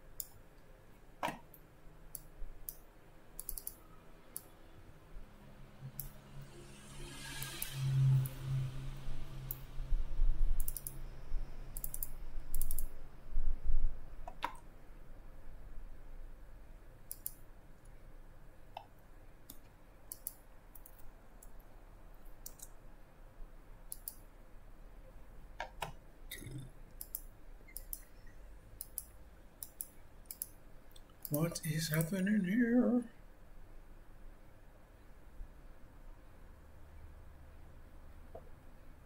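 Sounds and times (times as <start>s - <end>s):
computer mouse clicking: 0.2s - 0.4s, 2.1s - 2.8s, 3.4s - 4.5s, 6.0s - 6.2s, 10.6s - 11.0s, 11.7s - 12.9s, 17.1s - 17.4s, 19.5s - 21.6s, 22.4s - 22.8s, 23.9s - 24.2s, 26.9s - 28.1s, 28.8s - 32.1s
low rumble: 6.3s - 12.4s.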